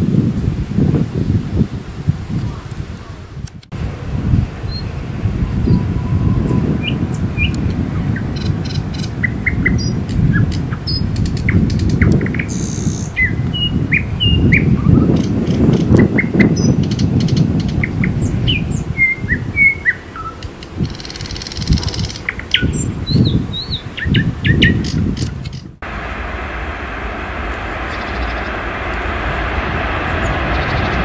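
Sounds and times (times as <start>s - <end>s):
low rumble: 3.7s - 15.8s, 25.7s - 31.0s
small songbird chirping: 4.6s - 25.8s.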